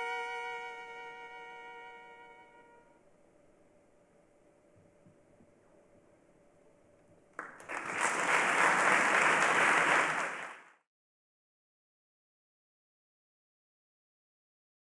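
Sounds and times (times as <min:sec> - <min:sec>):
audience applause: 0:07.4 - 0:10.8.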